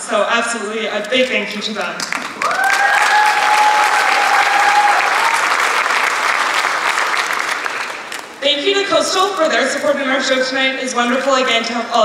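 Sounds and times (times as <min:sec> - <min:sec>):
audience applauding: 0:02.1 - 0:08.4.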